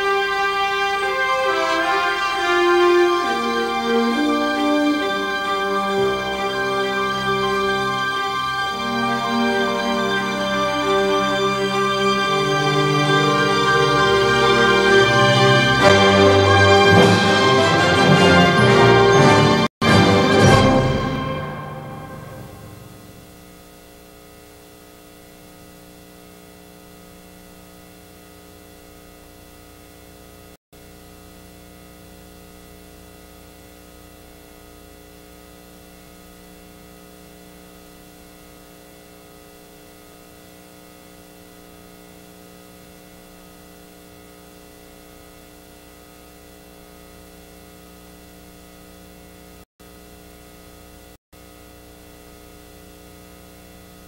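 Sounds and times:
tape hiss: 0:00.0 - 0:19.4, 0:20.7 - 0:54.0
steady electrical hum: 0:22.2 - 0:54.0.

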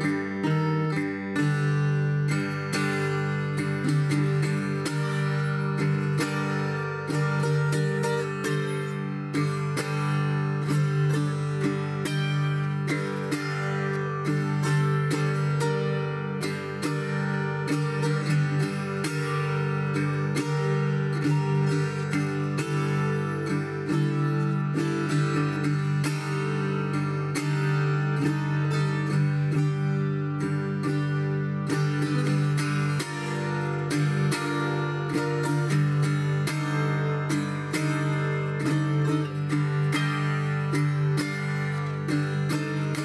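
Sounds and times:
fingerpicked folk guitar: 0:00.0 - 0:43.0.

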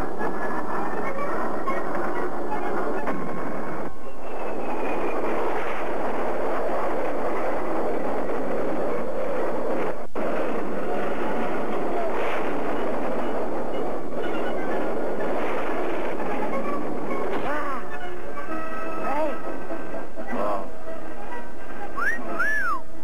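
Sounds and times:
jet engine roar: 0:00.0 - 0:18.2.

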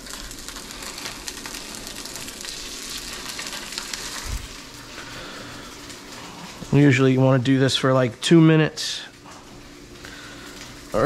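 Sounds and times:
fish sizzling in oil: 0:00.0 - 0:06.7.

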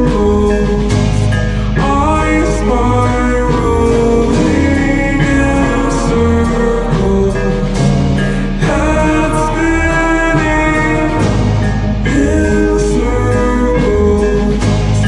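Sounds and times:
short percussion hits: 0:00.0 - 0:15.0
slow instrumental music: 0:00.0 - 0:15.0.

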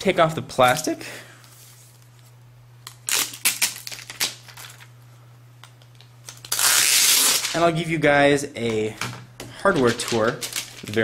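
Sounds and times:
plastic wrapping crackling: 0:02.9 - 0:04.9, 0:05.9 - 0:07.7, 0:09.6 - 0:11.0.

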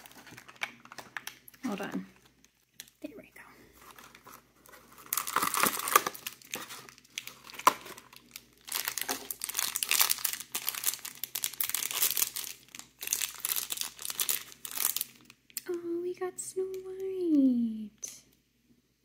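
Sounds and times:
packaging crinkling and tearing: 0:00.0 - 0:03.1, 0:03.8 - 0:15.6.

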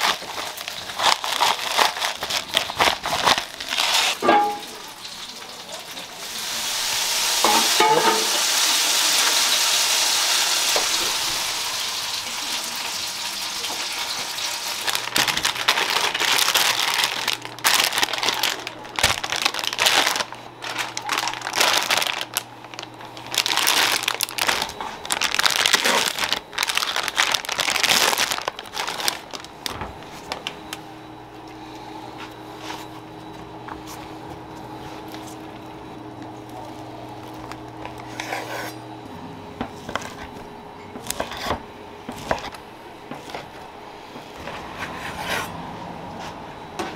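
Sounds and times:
plastic bag crinkling: 0:00.0 - 0:05.8, 0:12.2 - 0:30.8.

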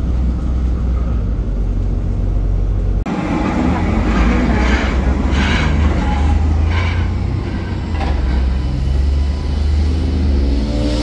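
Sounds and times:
tram rumbling on rails: 0:00.0 - 0:11.0.

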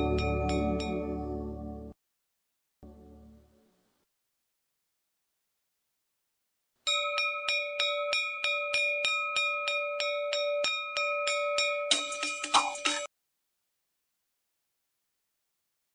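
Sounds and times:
bell ringing: 0:06.9 - 0:13.1.

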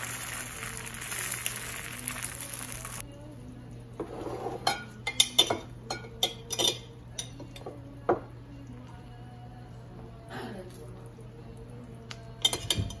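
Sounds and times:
metal utensil clinking on glass bowl: 0:04.6 - 0:07.5
low steady hum: 0:04.6 - 0:12.7.

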